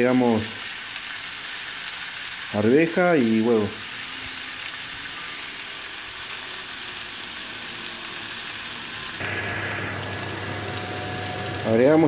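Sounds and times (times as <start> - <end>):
food sizzling on griddle: 0.0 - 12.0
low hum: 9.2 - 11.6.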